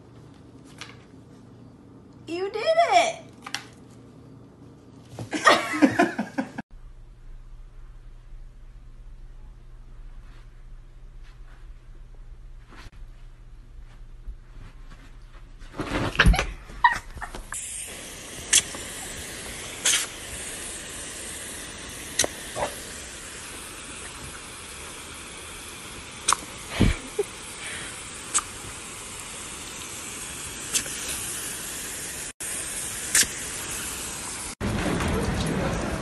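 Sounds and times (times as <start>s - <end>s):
hose nozzle spraying water: 17.5s - 34.6s
sharp clicks and snaps: 22.2s - 22.4s, 26.2s - 26.5s, 33.1s - 33.3s.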